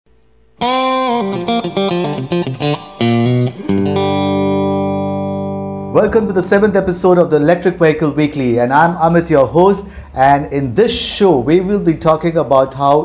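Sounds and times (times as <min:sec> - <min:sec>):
electric guitar jingle: 0:00.6 - 0:08.1.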